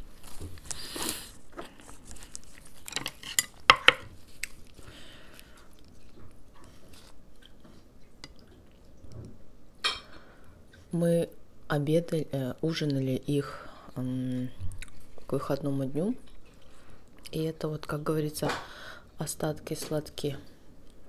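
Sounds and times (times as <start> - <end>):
lettuce leaf rustling: 0.0 - 7.6
soft chewing: 0.0 - 9.5, 13.9 - 15.5, 16.1 - 18.0.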